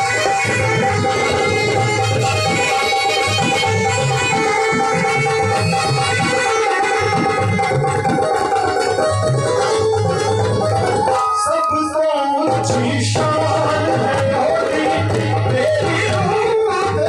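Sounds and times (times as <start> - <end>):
electronic keyboard melody: 0.0 - 14.8
dholak drum played by hand: 0.0 - 17.0.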